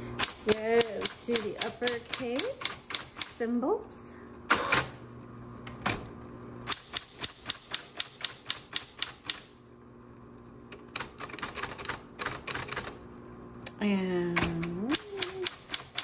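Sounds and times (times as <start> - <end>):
typewriter motor humming: 0.0 - 3.5, 4.5 - 5.0, 6.6 - 9.6, 10.7 - 13.0, 14.3 - 16.0
typewriter keys striking: 0.2 - 3.4, 6.7 - 9.4, 10.9 - 12.9, 14.4 - 16.0.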